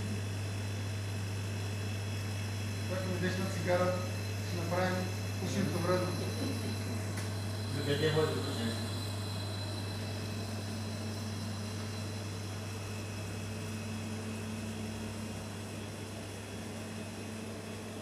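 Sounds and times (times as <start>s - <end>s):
compressor humming: 0.0s - 18.0s.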